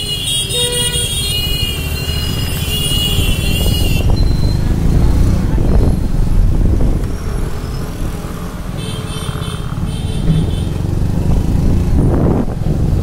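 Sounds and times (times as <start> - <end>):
vehicle rumbling: 0.0 - 13.0.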